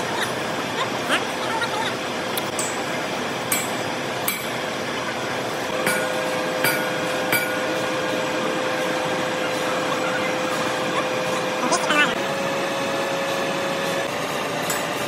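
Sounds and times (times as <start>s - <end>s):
lathe running: 2.0s - 15.0s
steady tone: 5.7s - 11.7s.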